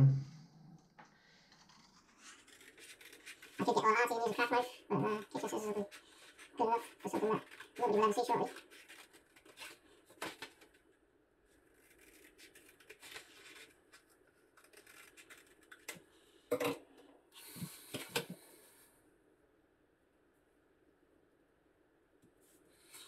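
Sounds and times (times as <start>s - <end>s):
scratchy rubbing on card: 1.6s - 10.5s, 11.6s - 15.8s.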